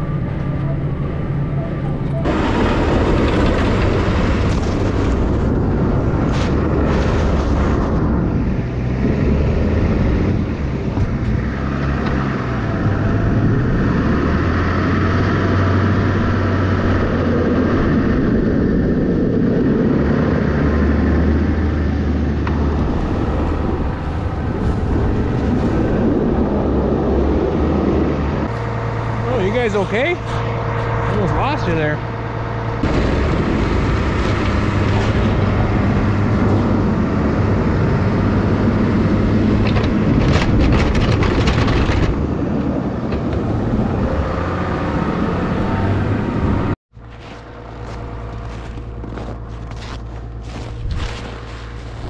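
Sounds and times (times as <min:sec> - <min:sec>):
tractor engine under load: 0:00.0 - 0:17.6, 0:20.8 - 0:52.0
rushing of snow being cleared: 0:02.3 - 0:09.8, 0:22.2 - 0:40.7, 0:47.0 - 0:52.0.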